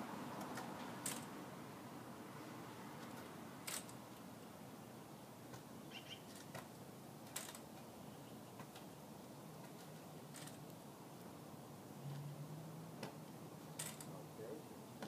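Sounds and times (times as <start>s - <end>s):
faint outdoor hum: 0.0s - 15.0s
bird chirp: 5.8s - 6.4s.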